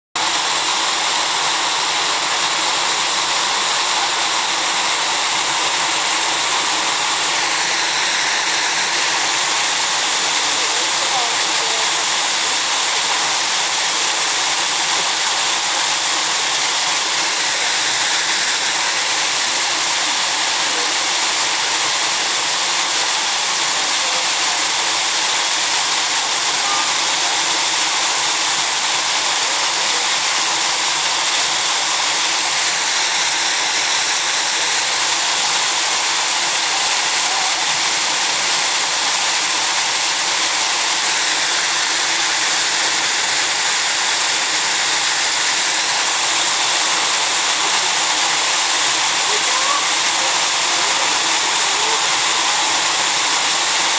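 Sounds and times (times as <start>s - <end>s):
water pouring into a pool: 0.2s - 53.9s.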